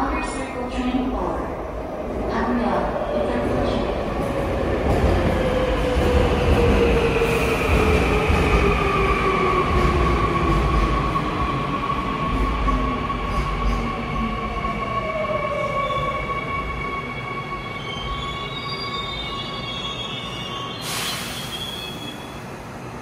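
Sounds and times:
electric train braking: 17.8 - 22.5.

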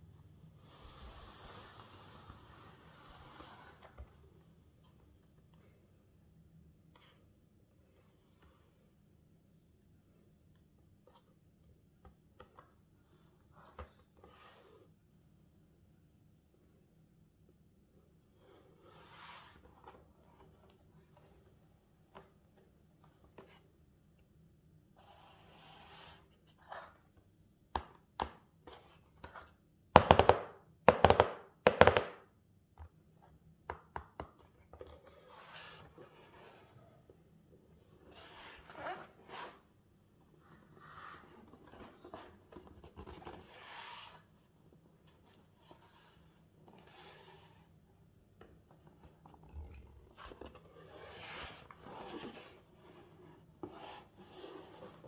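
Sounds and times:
taps on cardboard: 30.0 - 32.2.

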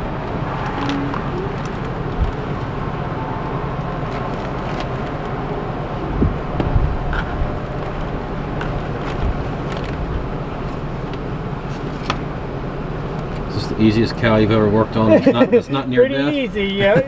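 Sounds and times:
vehicle engine rumbling: 0.0 - 17.0
dull low thumps: 6.1 - 8.2.

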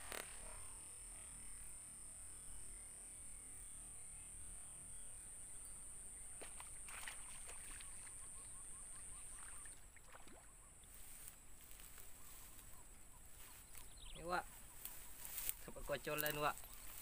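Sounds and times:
fish splashing at water surface: 6.4 - 8.2.

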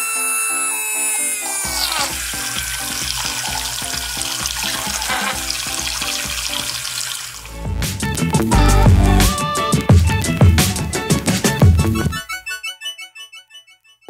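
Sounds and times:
small motor whining: 0.0 - 5.6
water spraying into a bowl: 1.4 - 8.1
music with steady beat: 7.6 - 12.3.

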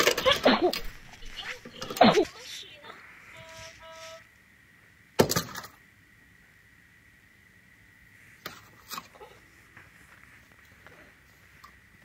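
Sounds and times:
electronic toy beeps: 3.3 - 4.2.

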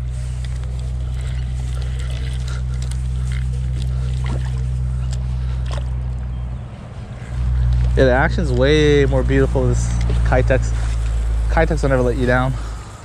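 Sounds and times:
motorboat engine droning: 0.0 - 13.0.

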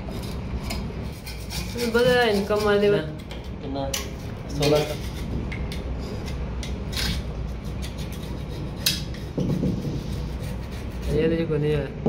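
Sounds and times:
steady low hum: 0.0 - 12.0
steel scraper scraping metal: 0.1 - 3.0, 6.0 - 11.2.

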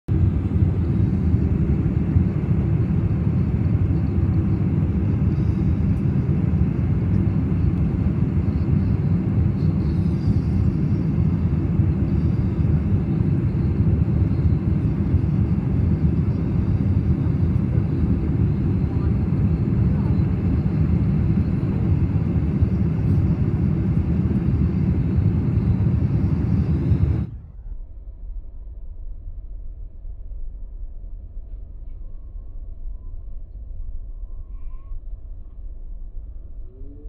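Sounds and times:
airplane cabin engine rumble: 0.1 - 27.7.

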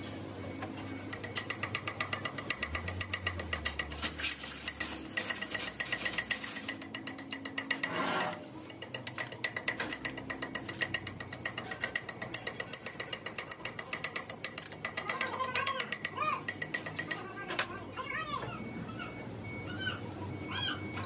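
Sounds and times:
hammer tapping on metal: 0.6 - 4.0, 4.7 - 17.7.

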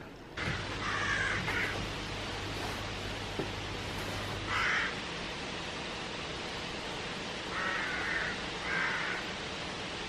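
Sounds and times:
steady background hiss: 0.0 - 10.0
crow cawing: 0.5 - 1.9, 4.4 - 5.0, 7.5 - 9.3.

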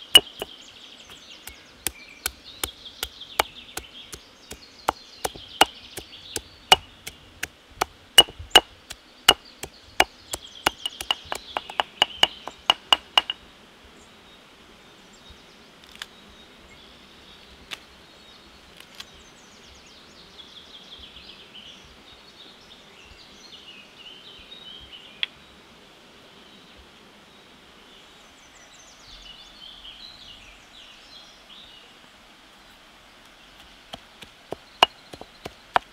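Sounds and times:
chopping strikes on wood: 0.1 - 0.5, 1.4 - 13.4, 33.9 - 35.9
single knocks: 10.7 - 13.4.

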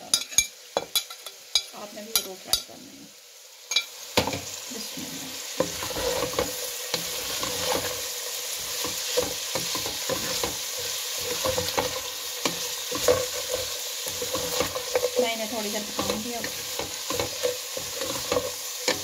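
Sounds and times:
vegetables sizzling in hot oil: 0.0 - 19.0
wooden spatula knocking and scraping pan: 5.6 - 19.0.

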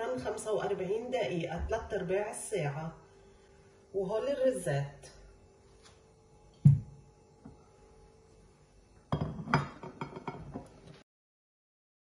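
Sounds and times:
heavy thud on countertop: 6.6 - 7.0
dishes clinking and knocking: 9.1 - 10.8.

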